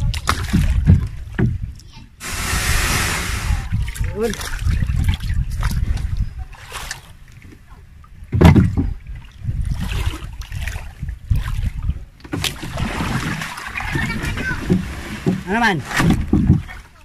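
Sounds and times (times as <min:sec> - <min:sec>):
water sloshing and splashing: 0:00.0 - 0:17.0
loud thump of canoe: 0:08.3 - 0:09.0, 0:12.2 - 0:16.8.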